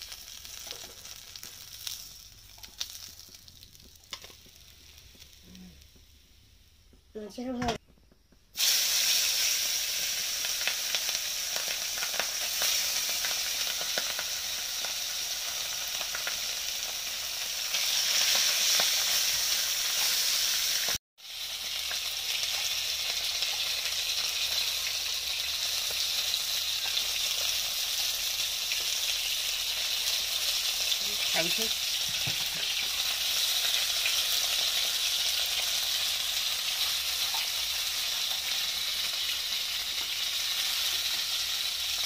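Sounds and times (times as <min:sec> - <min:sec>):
fish sizzling in hot oil: 0:00.0 - 0:07.3, 0:08.5 - 0:42.0.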